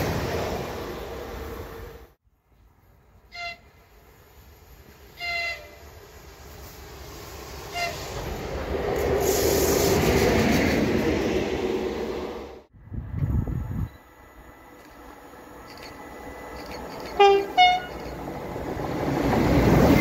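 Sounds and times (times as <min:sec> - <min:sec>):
train rail and running noise: 0:00.0 - 0:20.0
train horn blasts: 0:03.3 - 0:03.8, 0:05.2 - 0:05.8, 0:07.7 - 0:08.0, 0:17.0 - 0:18.1.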